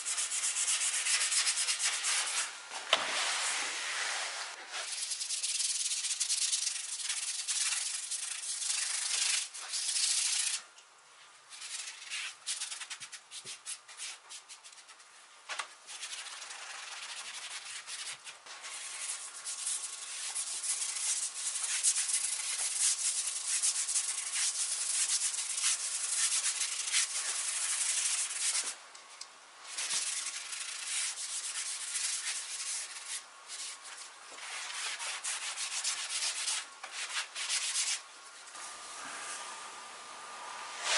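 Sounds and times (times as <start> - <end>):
paintbrush scrubbing wood: 15.9 - 28.7, 29.7 - 38.0.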